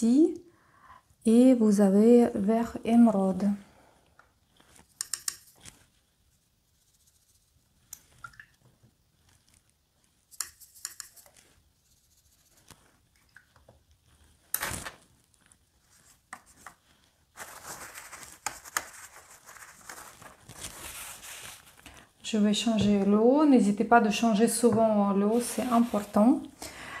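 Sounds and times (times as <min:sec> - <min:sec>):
brush rubbing on paper: 0:04.5 - 0:07.8, 0:09.2 - 0:13.0, 0:15.4 - 0:21.8, 0:25.3 - 0:26.4.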